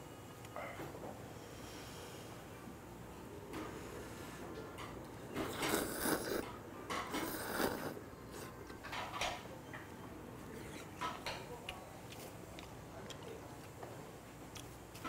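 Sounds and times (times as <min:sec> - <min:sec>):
man slurping noodles: 0:05.4 - 0:06.4, 0:07.1 - 0:08.7
eating sounds: 0:05.4 - 0:09.0.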